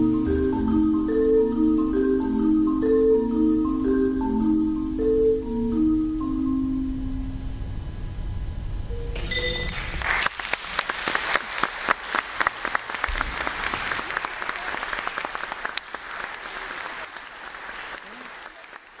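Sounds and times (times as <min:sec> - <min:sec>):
audience applauding: 0:09.7 - 0:19.0.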